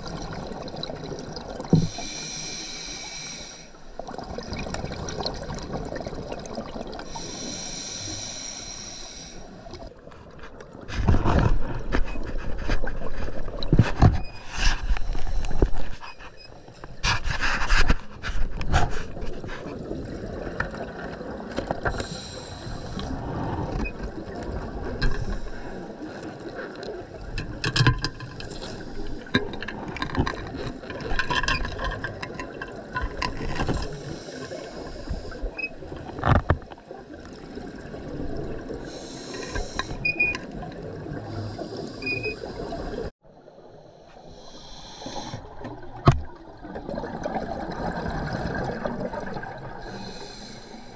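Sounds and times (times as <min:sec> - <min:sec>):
exhaled bubbles rushing: 0:00.0 - 0:01.7, 0:04.0 - 0:07.1, 0:45.4 - 0:50.0
regulator hissing inhalations: 0:01.8 - 0:03.8, 0:07.1 - 0:09.6, 0:21.9 - 0:23.1, 0:33.9 - 0:36.0, 0:38.9 - 0:40.0, 0:43.9 - 0:45.5, 0:49.8 - 0:50.9.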